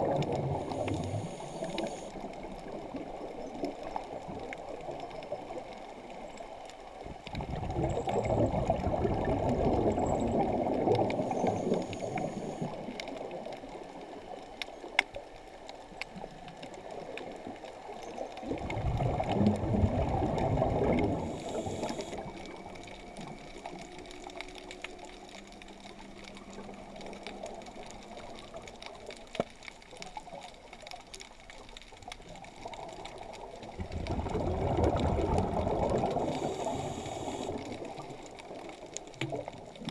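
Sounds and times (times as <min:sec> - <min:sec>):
diver's bubbles gurgling underwater: 0:00.0 - 0:06.2, 0:07.0 - 0:14.4, 0:16.2 - 0:39.9
quiet water noise: 0:00.0 - 0:39.9.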